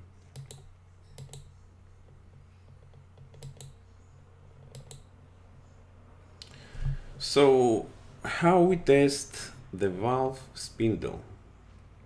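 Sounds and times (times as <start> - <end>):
low steady hum: 0.0 - 12.0
faint computer clicks: 0.2 - 3.8, 4.7 - 5.1.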